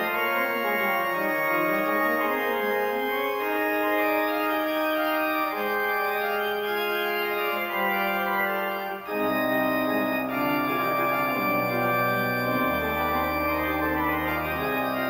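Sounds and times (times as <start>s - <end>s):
church organ chords: 0.0s - 15.0s.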